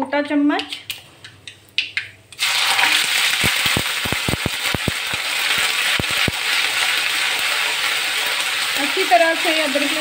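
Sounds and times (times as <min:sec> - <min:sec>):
sharp pops and clicks: 0:00.6 - 0:02.2, 0:03.4 - 0:06.5
paste sizzling in hot oil: 0:02.4 - 0:10.0.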